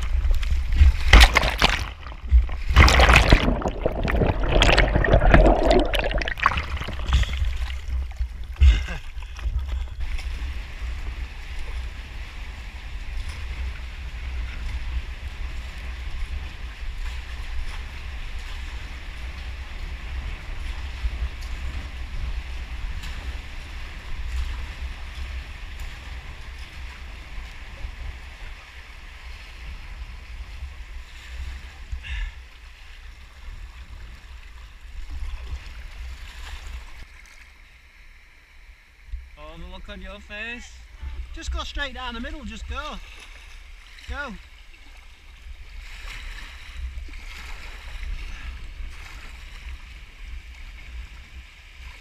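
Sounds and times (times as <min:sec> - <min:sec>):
wind rumble on microphone: 0:00.0 - 0:37.1, 0:43.0 - 0:52.0
water rushing around kayak hull: 0:00.0 - 0:52.0.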